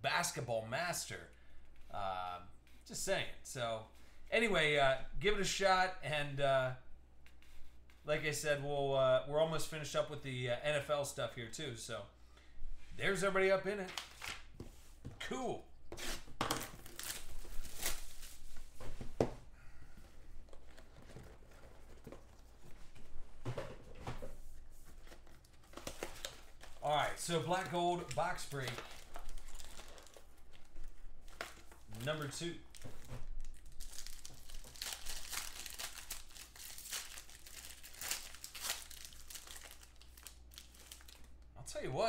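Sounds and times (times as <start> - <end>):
plastic wrap crackling: 16.5 - 18.6, 25.4 - 41.5
cardboard box handling: 20.4 - 24.2.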